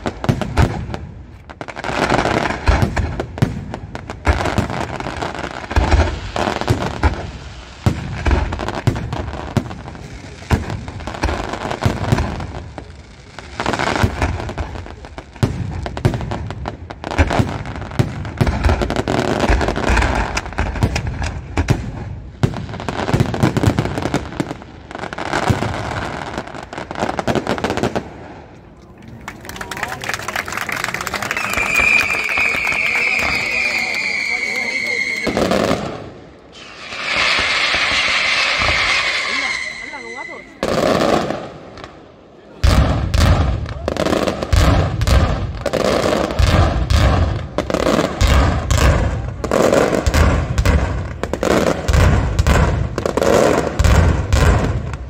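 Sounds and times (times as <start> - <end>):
fireworks booming: 0.0 - 28.8, 30.6 - 55.0
fireworks crackling: 0.0 - 55.0.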